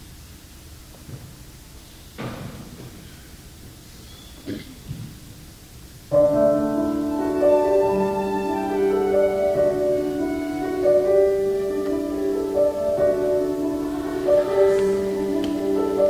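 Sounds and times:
bowed strings playing held chords: 0:06.4 - 0:16.0.

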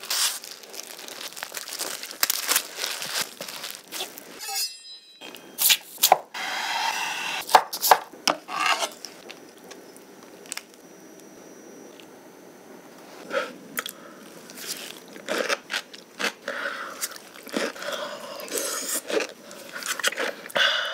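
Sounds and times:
crunchy handling sounds: 0:00.0 - 0:04.4, 0:07.5 - 0:12.2, 0:12.9 - 0:20.6
plastic film crinkling: 0:00.0 - 0:04.4.

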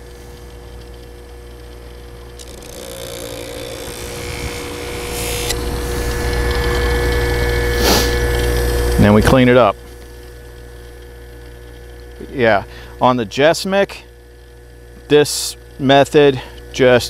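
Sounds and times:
buffer motor humming: 0:00.0 - 0:17.0
knife rubbing on felt wheel: 0:02.4 - 0:08.4.

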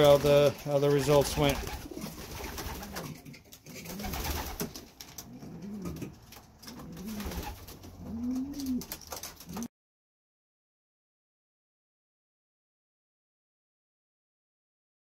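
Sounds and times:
pigeons cooing: 0:01.2 - 0:09.7.

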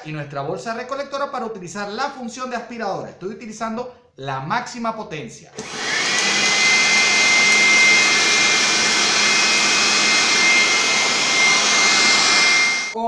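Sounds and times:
electric blower vacuum running: 0:05.6 - 0:13.0.

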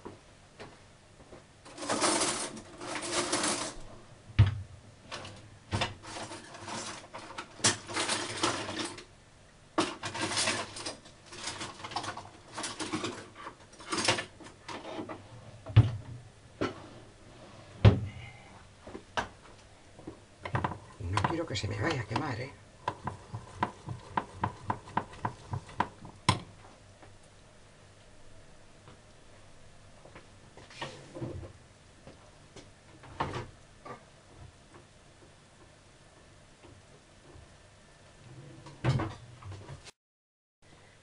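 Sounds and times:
melting sugar bubbling in saucepan: 0:20.4 - 0:28.1.

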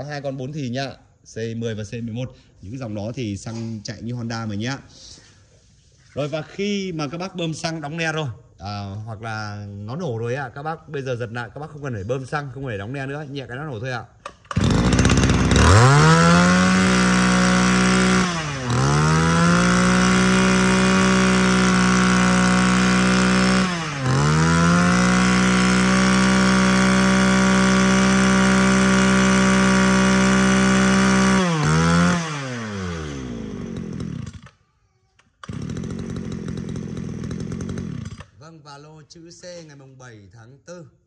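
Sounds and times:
brush cutter engine revving: 0:14.4 - 0:34.6, 0:35.4 - 0:38.4.

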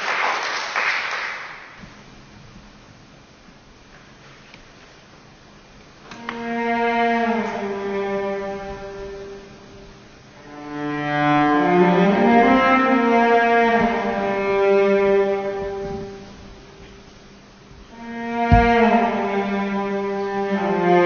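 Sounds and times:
solo cello bowed notes: 0:06.0 - 0:21.0.

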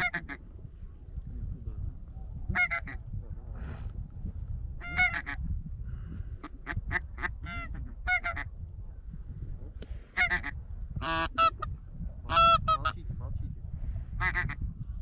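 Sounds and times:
goose honking: 0:00.0 - 0:00.4, 0:02.6 - 0:03.0, 0:04.8 - 0:05.4, 0:06.4 - 0:08.5, 0:10.2 - 0:11.7, 0:12.3 - 0:13.0
wind rumble on microphone: 0:00.0 - 0:15.0.

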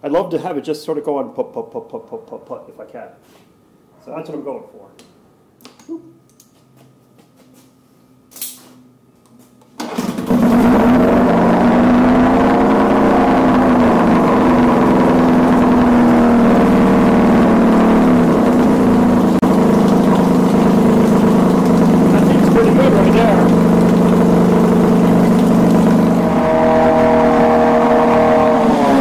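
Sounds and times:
outboard motor starting and running: 0:09.8 - 0:29.0.

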